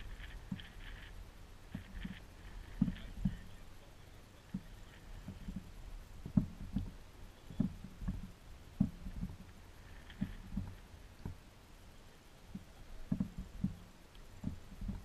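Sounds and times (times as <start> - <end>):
thumps on aluminium boat hull: 4.5 - 9.5, 12.5 - 13.8.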